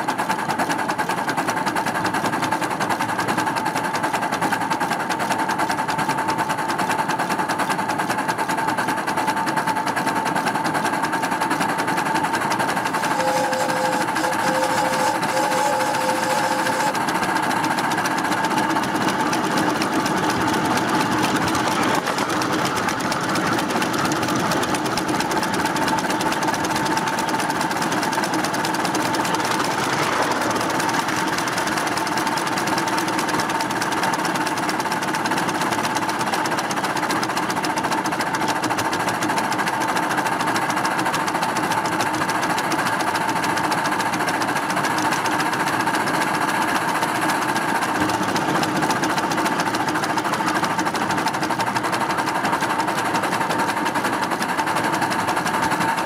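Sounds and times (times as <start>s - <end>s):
steam locomotive exhaust beat: 0.0s - 56.0s
wheels clattering on rails: 0.0s - 56.0s.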